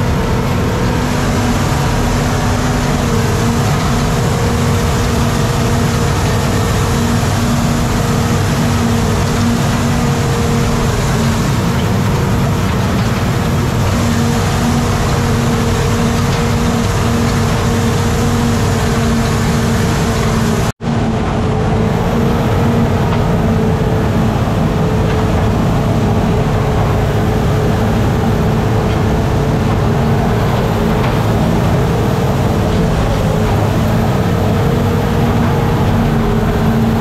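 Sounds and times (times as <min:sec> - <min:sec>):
diesel engine running: 0:00.0 - 0:37.0.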